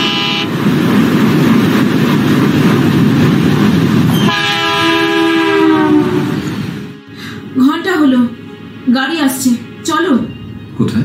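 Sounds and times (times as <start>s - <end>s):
locomotive horn chord: 0.0s - 0.5s, 4.2s - 7.6s
diesel locomotive running past: 0.0s - 11.0s.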